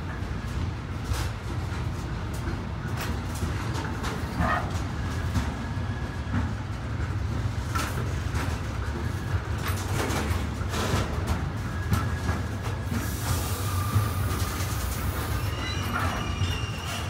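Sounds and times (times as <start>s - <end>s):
train wheels rumbling on rail: 0.0s - 17.0s
wheel squeal: 11.8s - 17.0s.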